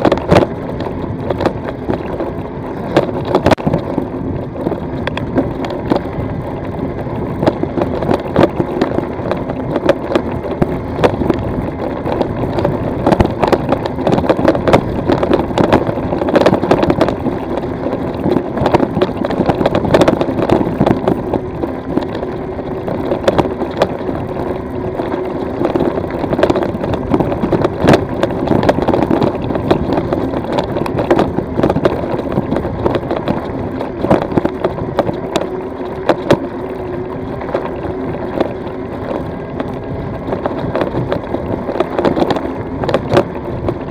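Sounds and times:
bike rattling and knocking: 0.0 - 43.9
steady hum: 0.0 - 43.9.

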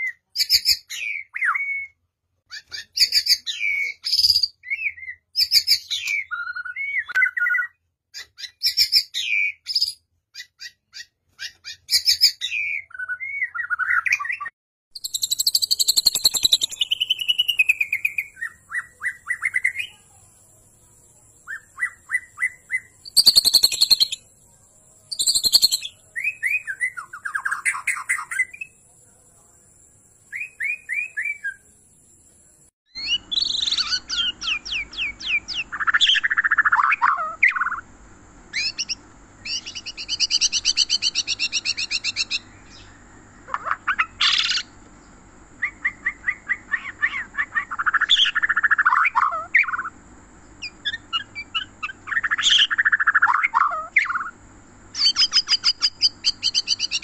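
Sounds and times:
birds singing whistles and trills: 0.0 - 29.0, 30.1 - 37.8, 38.5 - 57.0
harsh scratchy bird calls: 2.5 - 20.2, 21.4 - 24.2, 25.1 - 28.7, 38.5 - 44.8, 54.9 - 57.0.

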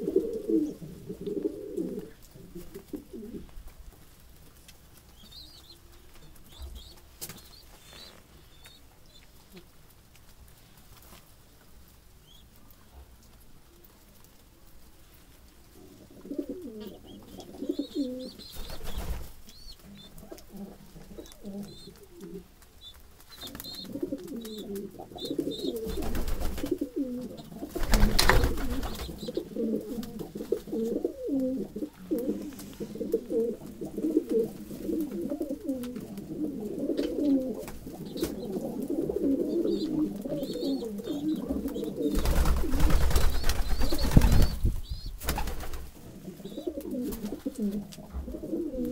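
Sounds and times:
pigeons cooing: 0.0 - 3.5, 15.8 - 48.9
pigeon wings beating: 17.9 - 20.4, 21.3 - 31.6, 37.0 - 46.0.

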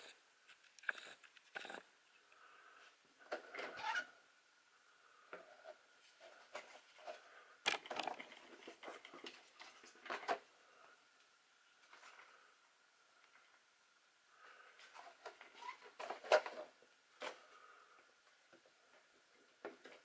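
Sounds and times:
plastic clicks and knocks: 7.7 - 8.4
handling rustling: 7.7 - 8.8.

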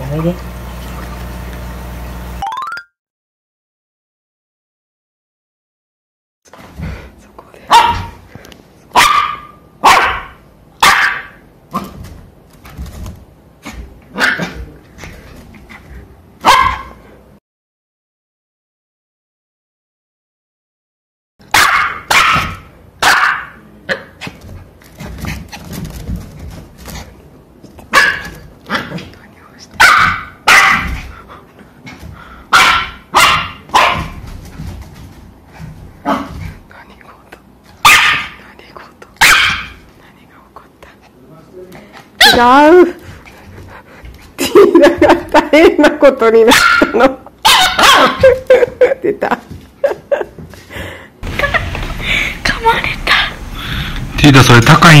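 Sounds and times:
puppy barking: 7.7 - 8.2, 8.9 - 11.4, 14.1 - 14.6, 16.4 - 17.0, 21.5 - 24.1, 27.9 - 29.0, 29.8 - 31.0, 32.5 - 34.2, 37.8 - 38.4, 39.2 - 39.8, 42.2 - 42.6, 46.4 - 48.3, 53.0 - 53.5.

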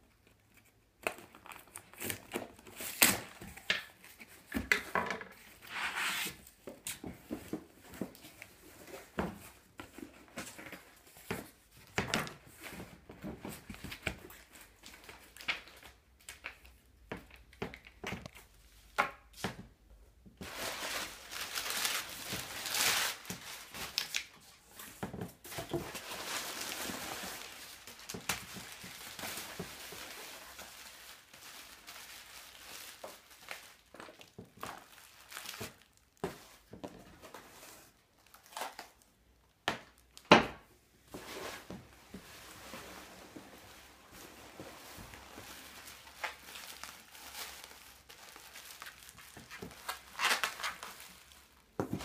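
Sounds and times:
packing material rustling: 20.4 - 39.2, 41.1 - 52.0.

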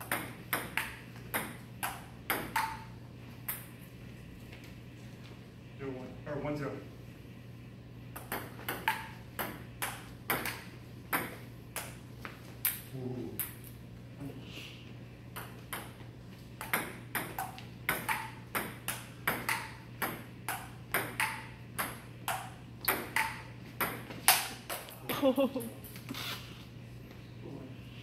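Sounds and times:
table tennis ball clicking: 0.0 - 2.8, 16.6 - 24.8
steady low hum: 0.0 - 28.0.

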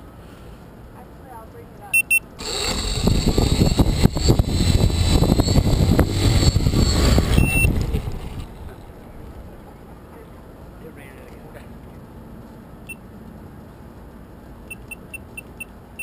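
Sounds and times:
electronic beeps: 1.9 - 2.3, 5.3 - 8.0, 14.7 - 15.7
drone motors buzzing: 2.4 - 9.6.

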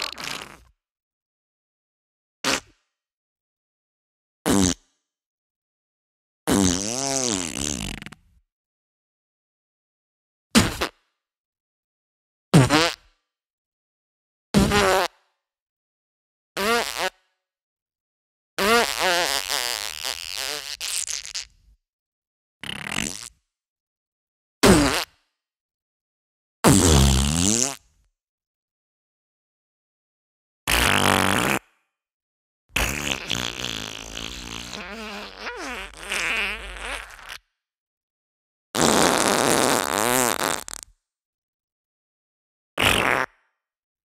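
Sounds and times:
fart sound effects: 0.0 - 0.7, 2.4 - 2.7, 6.5 - 8.2, 10.6 - 11.0, 12.6 - 13.0, 14.6 - 15.1, 18.6 - 21.6, 22.6 - 23.3, 24.6 - 25.1, 26.7 - 27.8, 30.7 - 31.7, 32.8 - 37.4, 38.8 - 40.9, 42.8 - 43.4.

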